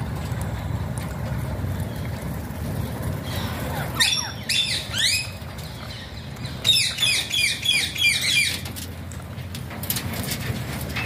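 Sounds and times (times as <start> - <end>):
parakeets screeching: 3.2 - 8.7.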